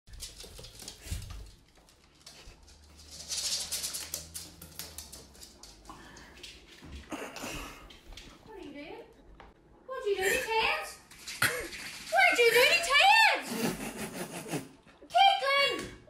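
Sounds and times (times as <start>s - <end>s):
dog claws clicking on hard floor: 0.1s - 7.1s.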